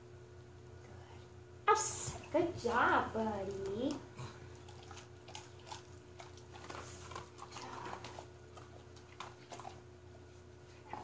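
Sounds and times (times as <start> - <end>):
low steady hum: 0.0 - 11.0
dog chewing: 3.4 - 11.0.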